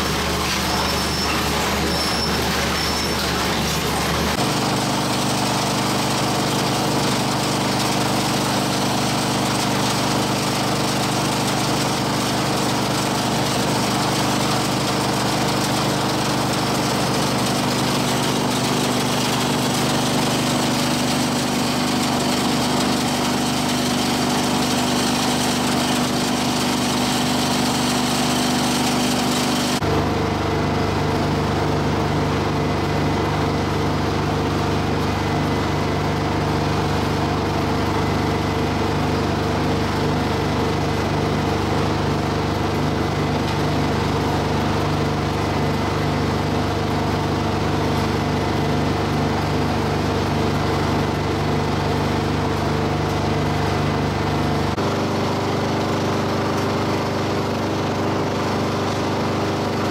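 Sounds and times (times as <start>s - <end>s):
hiss of grinding scrap: 0.0s - 4.4s
shredder drive humming: 0.0s - 59.9s.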